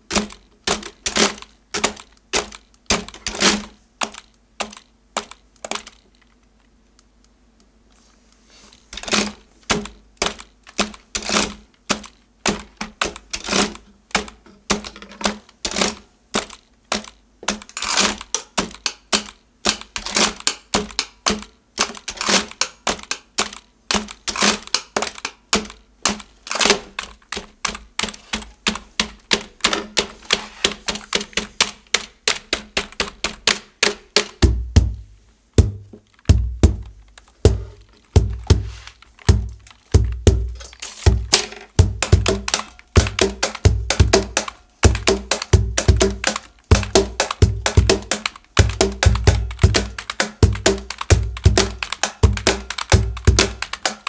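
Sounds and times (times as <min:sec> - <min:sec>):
keyboard keys clattering rhythmically: 0:41.8 - 0:54.0.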